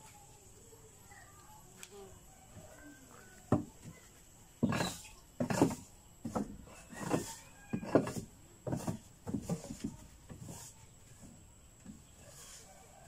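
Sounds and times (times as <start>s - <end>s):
tool scraping wooden floor: 4.6s - 10.8s.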